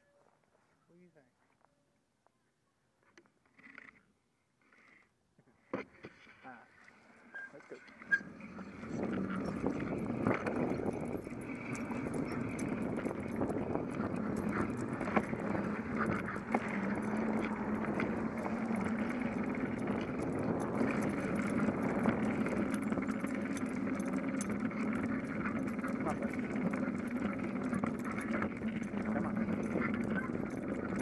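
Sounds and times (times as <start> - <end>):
bicycle rolling on concrete: 6.9 - 31.0
bike clicks and rattles: 7.9 - 31.0.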